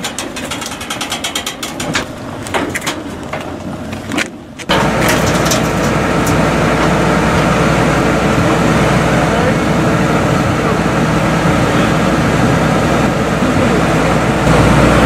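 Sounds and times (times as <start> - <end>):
metallic clicks and clanks: 0.0 - 6.4
truck engine droning: 0.0 - 15.0.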